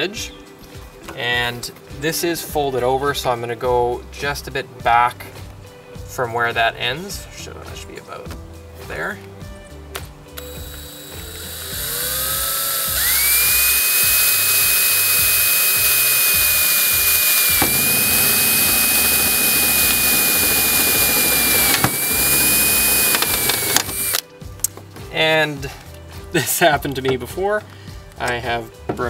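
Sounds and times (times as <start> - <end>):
drill bit snapping: 10.4 - 24.2
power drill whining into metal: 10.4 - 24.2.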